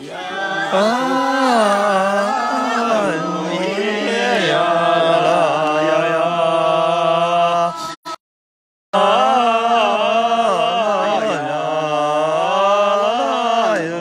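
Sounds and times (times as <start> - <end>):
person singing unaccompanied: 0.0 - 8.2.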